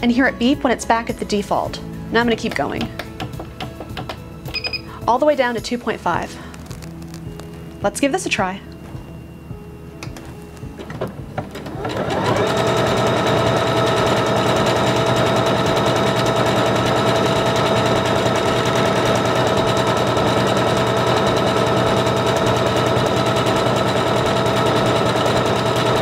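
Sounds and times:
sewing machine motor whine: 0:11.4 - 0:26.0.

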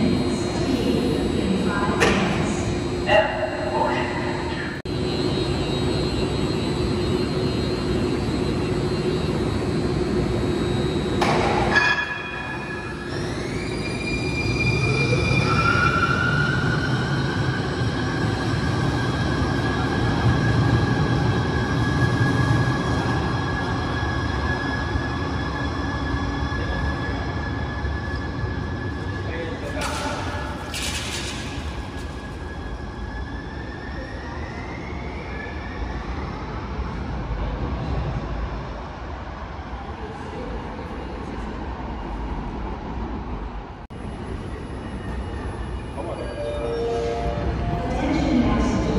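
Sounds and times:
steady hum: 0:00.0 - 0:34.1
train low rumble: 0:00.0 - 0:35.2, 0:35.8 - 0:48.9
electric train motor whine: 0:04.9 - 0:11.7.

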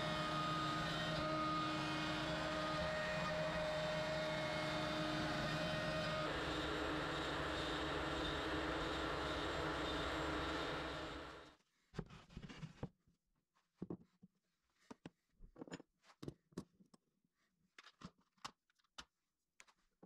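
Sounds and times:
router spindle running: 0:00.0 - 0:11.4.

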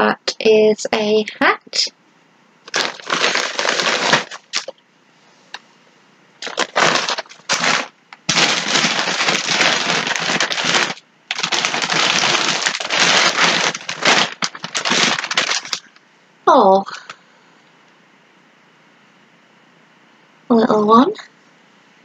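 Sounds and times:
plastic packaging crinkling: 0:02.7 - 0:04.8, 0:06.4 - 0:16.0.

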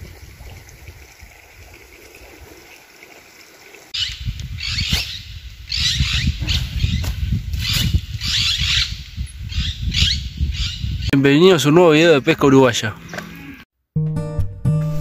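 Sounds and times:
wind buffeting microphone: 0:00.0 - 0:02.7, 0:04.0 - 0:11.2.

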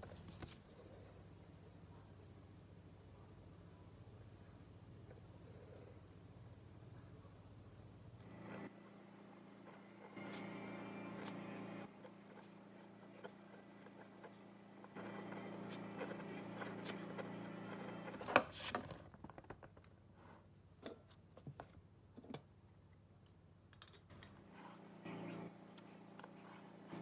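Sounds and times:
ballpoint pen writing on card: 0:10.2 - 0:18.4.

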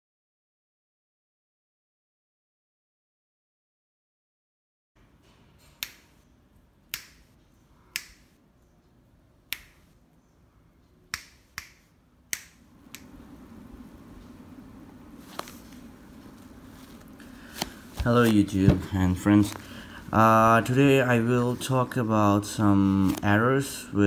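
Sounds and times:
faint background noise: 0:05.0 - 0:24.0.

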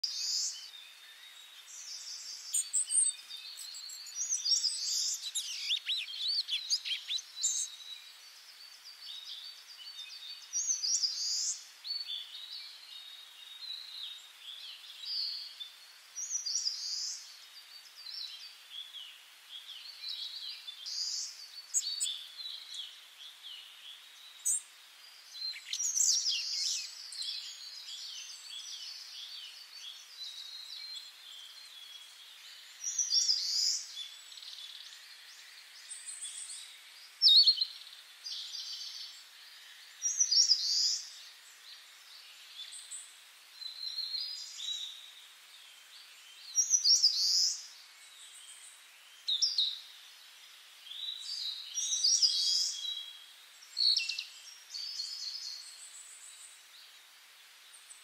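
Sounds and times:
birds chirping: 0:00.0 - 0:24.7
faint background hiss: 0:00.0 - 0:58.0.

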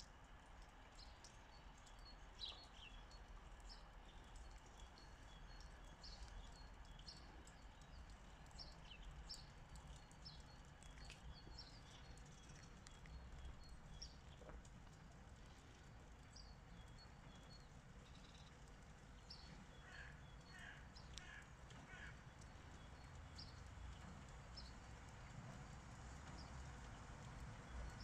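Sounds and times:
small birds chirping: 0:00.9 - 0:28.0.

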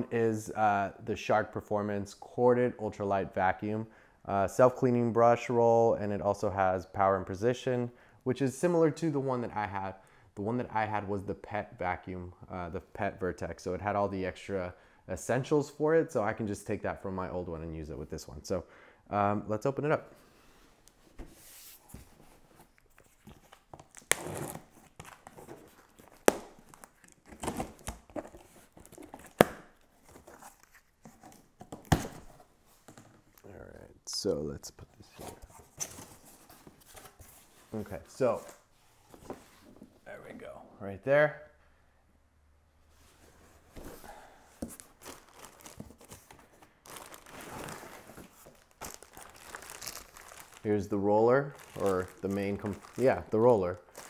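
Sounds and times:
tape tearing: 0:22.6 - 0:32.3
plastic bag crinkling: 0:44.9 - 0:50.8, 0:51.4 - 0:54.0.

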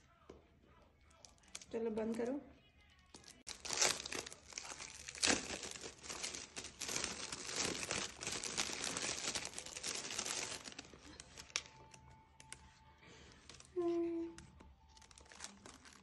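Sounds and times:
foil wrap crinkling: 0:01.0 - 0:01.8, 0:03.1 - 0:12.6, 0:13.3 - 0:16.0
wrapping paper tearing: 0:03.2 - 0:12.6, 0:14.8 - 0:16.0.

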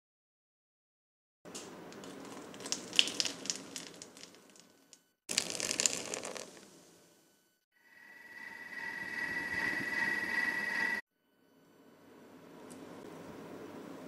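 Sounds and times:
stout foaming fizz: 0:05.3 - 0:06.6.

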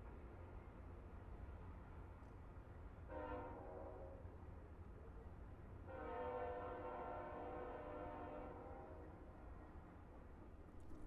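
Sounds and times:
locomotive air horn blasts: 0:06.0 - 0:08.4.

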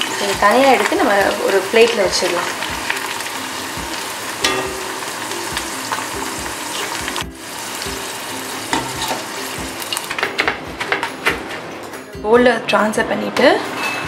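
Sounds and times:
corn sizzling in hot oil: 0:00.0 - 0:10.2
strainer clinking against pan: 0:04.4 - 0:05.1.

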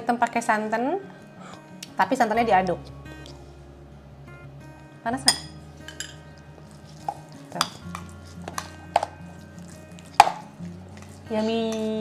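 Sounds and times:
soft background music: 0:00.0 - 0:12.0
spoon clinking against bowl: 0:05.2 - 0:06.2, 0:07.1 - 0:09.1.

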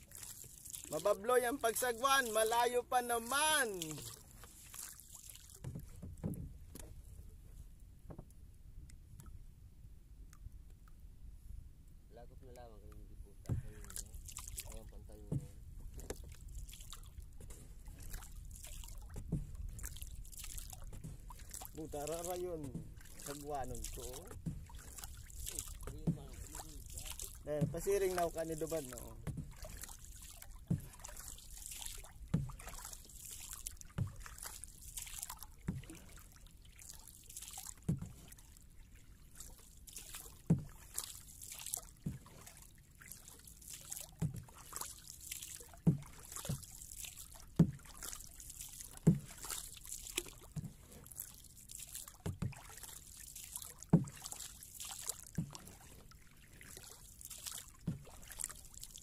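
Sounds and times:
paddle splashing water: 0:00.0 - 0:09.5, 0:12.9 - 0:59.0
paddle knocking hull: 0:00.4 - 0:07.4, 0:08.0 - 0:08.4, 0:13.4 - 0:36.3, 0:37.8 - 0:38.3, 0:39.3 - 0:42.4, 0:45.6 - 0:51.0, 0:52.2 - 0:52.9, 0:53.9 - 0:54.6, 0:55.2 - 0:56.1, 0:57.7 - 0:59.0.

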